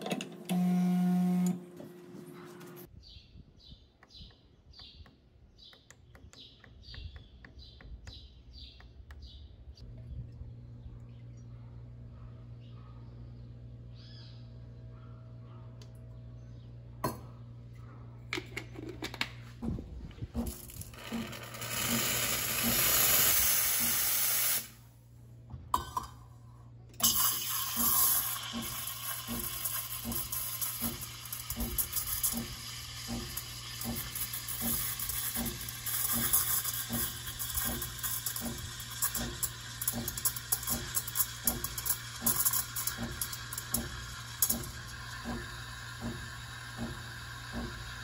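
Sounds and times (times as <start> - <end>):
espresso machine steam wand hissing: 21.1 - 24.7, 27.0 - 48.0.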